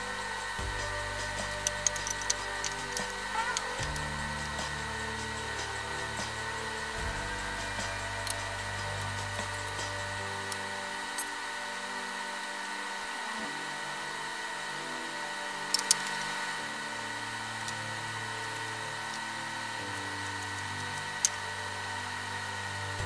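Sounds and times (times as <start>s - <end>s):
hum of sustained tones: 0.0s - 23.0s.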